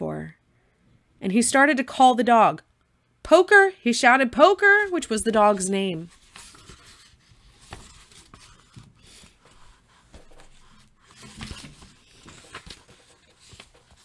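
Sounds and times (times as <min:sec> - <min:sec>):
faint rustling and scraping: 0:06.0 - 0:14.0.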